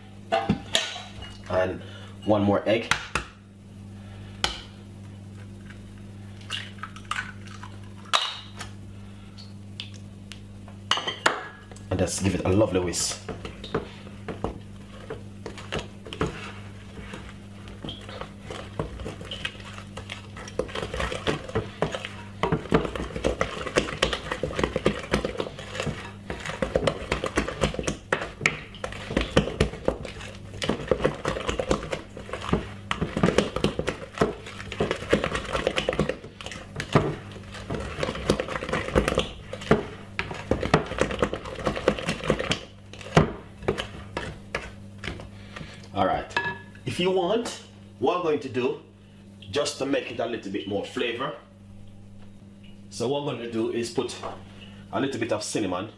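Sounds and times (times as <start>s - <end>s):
wooden spoon beating batter in bowl: 11.2s - 46.0s.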